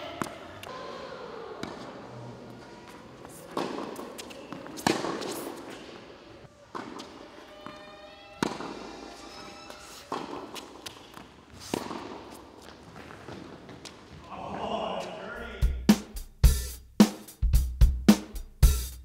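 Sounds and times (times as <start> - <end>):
tennis ball hit with racquets: 0.0 - 0.8, 1.6 - 14.0.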